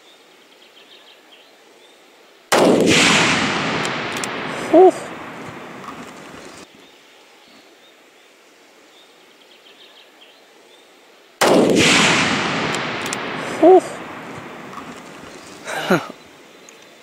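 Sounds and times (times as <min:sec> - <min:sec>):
rifle shot with echo: 0:02.5 - 0:06.6, 0:11.4 - 0:15.6.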